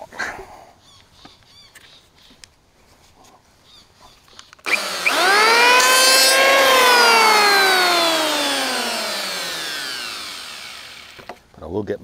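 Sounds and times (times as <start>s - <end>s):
electric planer motor whine: 4.7s - 11.4s.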